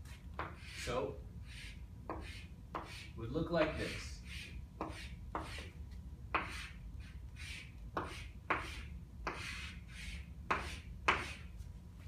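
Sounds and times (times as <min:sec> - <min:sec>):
chalk scratching on blackboard: 0:00.0 - 0:11.7.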